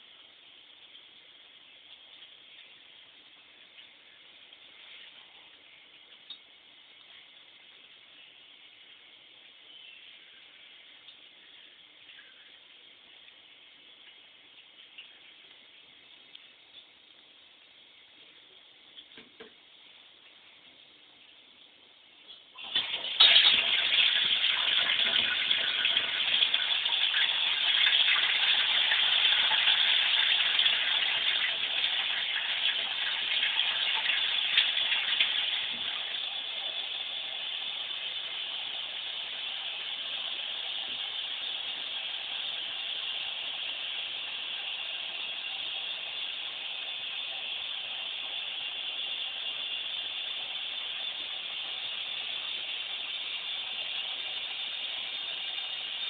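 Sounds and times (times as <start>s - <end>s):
water running into bathtub: 22.5s - 56.0s.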